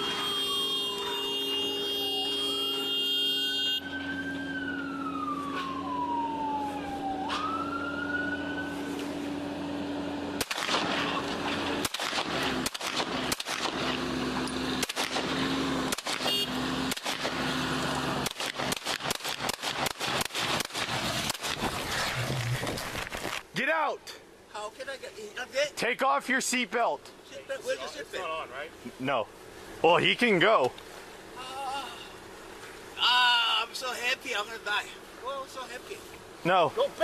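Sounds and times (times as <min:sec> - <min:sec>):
police siren wailing: 0:00.0 - 0:10.3
engine hum: 0:00.0 - 0:23.5.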